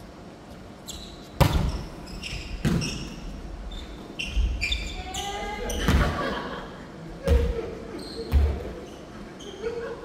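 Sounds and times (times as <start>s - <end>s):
sneakers squeaking on wooden floor: 0.8s - 6.1s, 7.3s - 9.6s.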